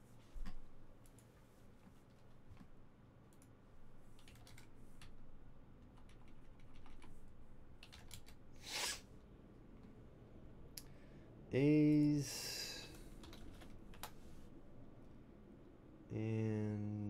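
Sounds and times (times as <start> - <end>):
typing on computer keyboard: 4.1 - 5.2, 5.8 - 7.2, 7.8 - 8.4, 12.9 - 14.2.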